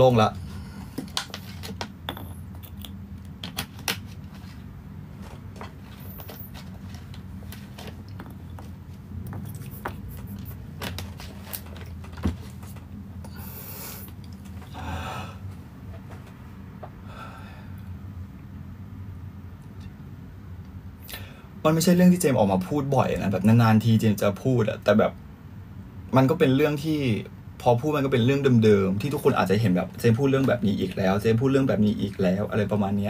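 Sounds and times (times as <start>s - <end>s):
low steady hum: 0.0s - 33.0s
breathy rushes: 13.3s - 15.6s, 17.0s - 17.8s.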